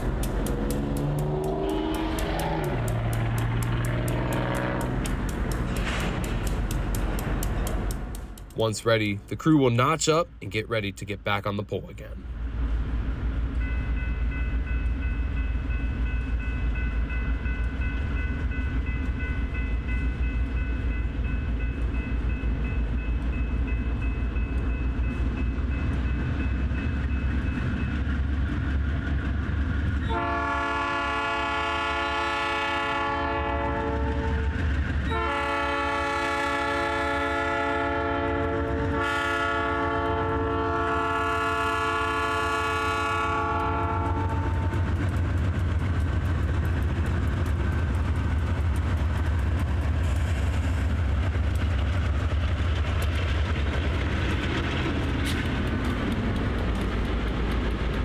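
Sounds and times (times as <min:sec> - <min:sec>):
diesel locomotives rumbling: 0:00.0 - 0:58.0
locomotive horn blasts: 0:30.0 - 0:44.8.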